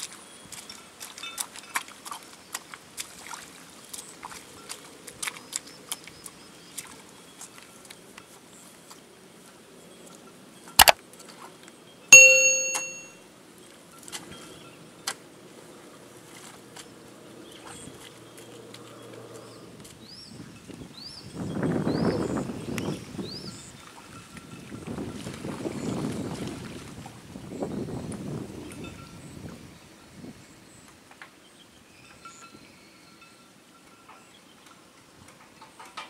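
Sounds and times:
metallic ring: 12.2 - 13.1.

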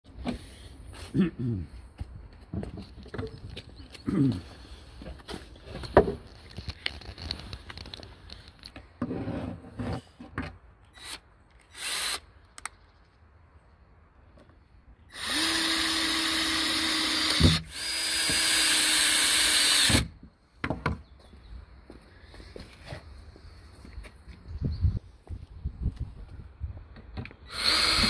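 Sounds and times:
cordless drill whining: 11.0 - 12.2, 15.1 - 20.1, 27.4 - 28.0.

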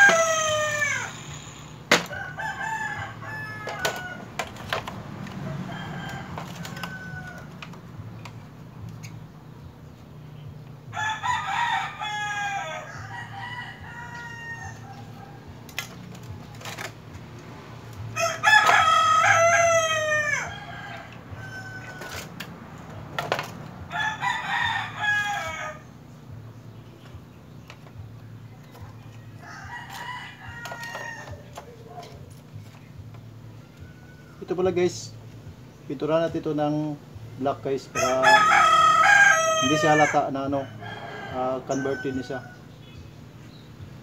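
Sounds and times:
rooster crowing: 0.0 - 4.5, 5.4 - 7.8, 10.9 - 15.6, 18.2 - 22.3, 23.8 - 25.9, 29.4 - 32.0, 38.0 - 42.6.

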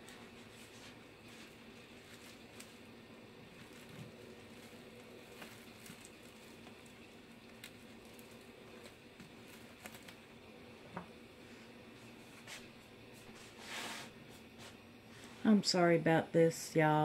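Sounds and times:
bubble wrap and tape clicks: 1.4 - 2.9, 3.5 - 10.3.

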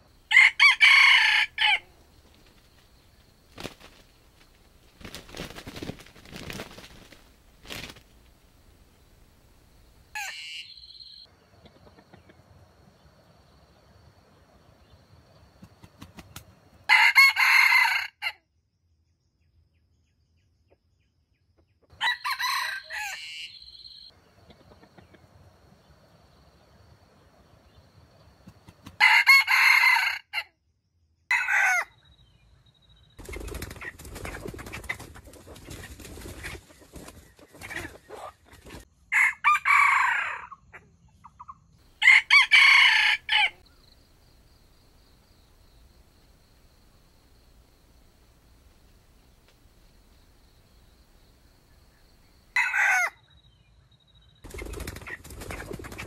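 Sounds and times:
rooster crowing: 0.3 - 1.9, 16.9 - 18.4, 22.0 - 24.0, 29.0 - 30.5, 31.3 - 31.9, 39.1 - 40.6, 42.0 - 43.6, 52.6 - 53.2.

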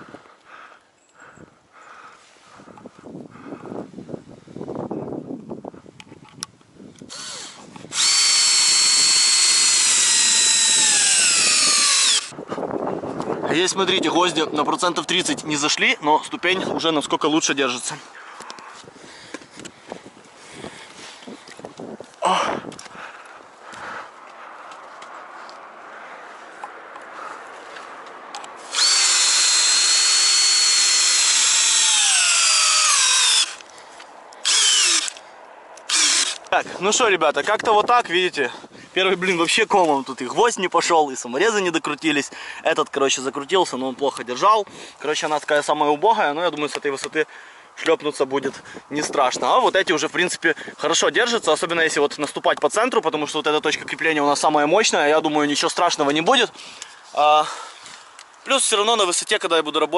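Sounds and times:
cordless drill driving screw: 7.1 - 12.3, 28.6 - 33.8, 34.4 - 35.2, 35.8 - 36.5.

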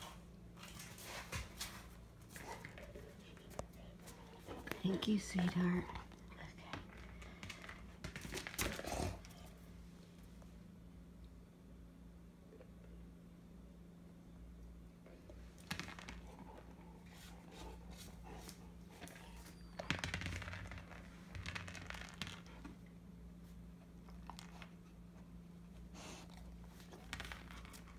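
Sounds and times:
puppy chewing plastic ball: 15.4 - 23.0, 26.3 - 27.9.

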